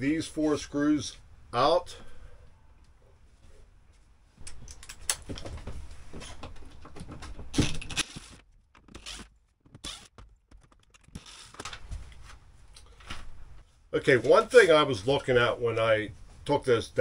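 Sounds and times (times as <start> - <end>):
screws and plastic rattling: 6.2 - 11.9.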